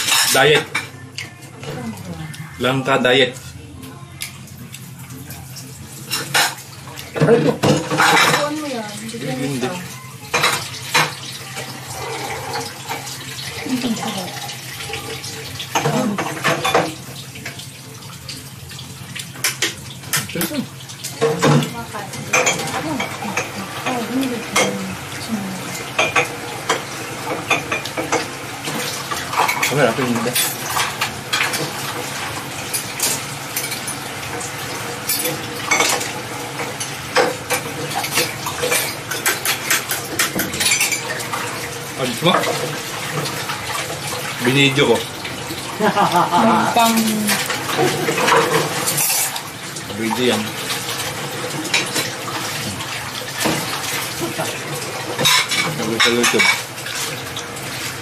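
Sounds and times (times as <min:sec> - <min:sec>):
running water: 0:00.0 - 0:58.0.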